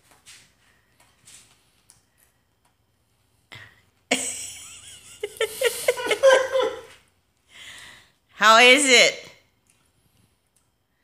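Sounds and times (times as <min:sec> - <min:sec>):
person laughing: 0:04.1 - 0:07.0.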